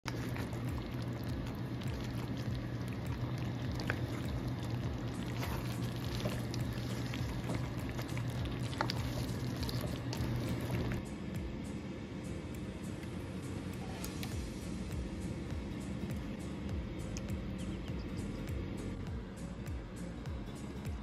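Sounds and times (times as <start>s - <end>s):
steady low hum: 0.0s - 21.0s
stew bubbling in a pan: 0.1s - 11.0s.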